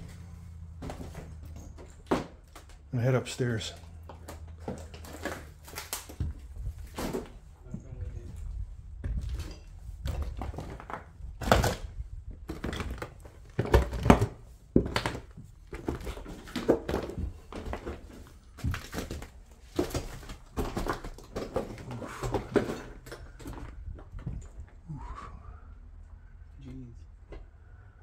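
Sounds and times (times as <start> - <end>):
footsteps on wooden stairs: 3.8 - 11.2, 12.3 - 24.7.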